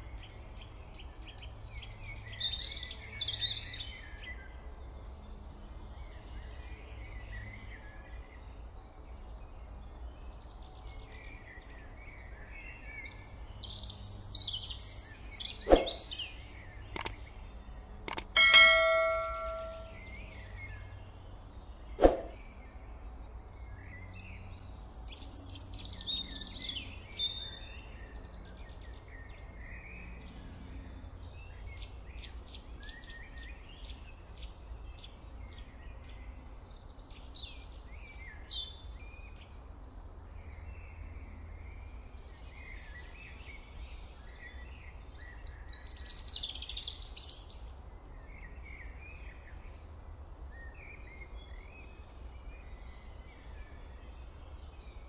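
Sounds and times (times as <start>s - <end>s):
birds chirping and singing: 6.1s - 20.0s
sharp ding: 18.1s - 20.1s.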